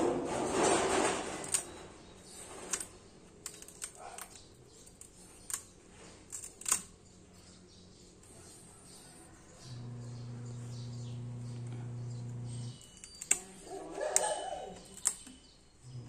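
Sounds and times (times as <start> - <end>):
sharp little clicks and snaps: 2.7 - 7.0, 13.0 - 13.6, 14.2 - 15.4.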